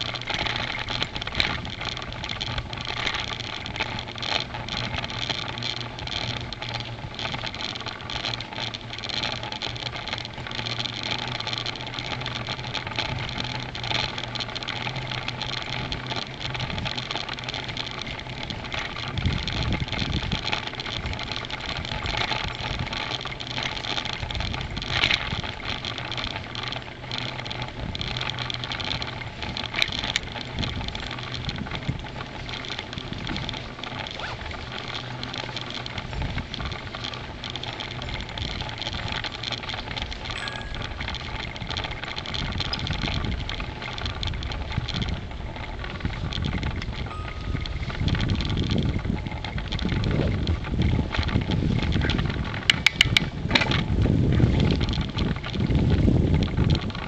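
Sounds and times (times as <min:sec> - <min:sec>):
bicycle rattles and knocks: 0:00.0 - 0:57.0
low steady hum: 0:00.0 - 0:57.0
wind and tyre noise: 0:00.0 - 0:57.0.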